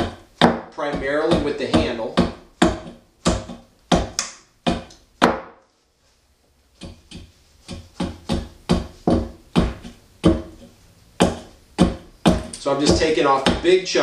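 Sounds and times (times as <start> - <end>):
axe chopping wood: 0.0 - 5.6, 7.7 - 10.6, 11.2 - 13.6.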